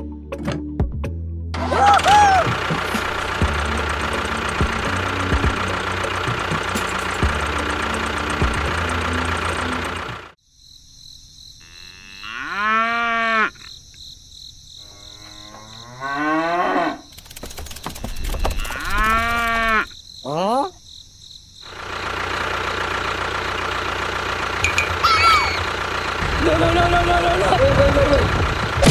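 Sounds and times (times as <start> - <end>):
toy tractor motor running: 2.5 - 10.3, 21.7 - 28.9
cow mooing: 11.6 - 13.7, 14.8 - 17.1, 18.6 - 19.9
rapid clicks: 17.1 - 19.6.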